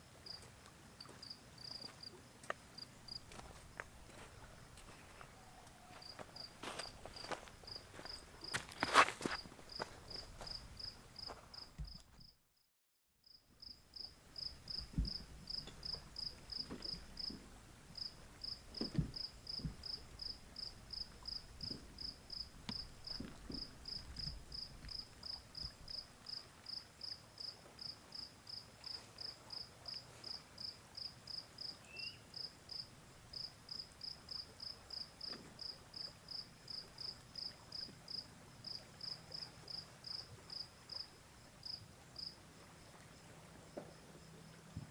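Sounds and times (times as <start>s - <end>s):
cricket chirping: 1.0s - 2.1s, 2.8s - 4.3s, 5.8s - 12.4s, 13.2s - 17.4s, 18.0s - 43.0s
soft low thumps: 14.7s - 25.0s.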